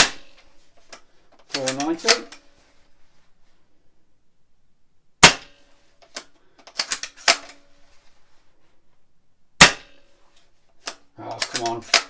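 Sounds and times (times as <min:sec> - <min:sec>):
rifle bolt clicking: 0:01.5 - 0:02.4
airsoft rifle shot crack: 0:05.2 - 0:05.6, 0:09.6 - 0:10.0.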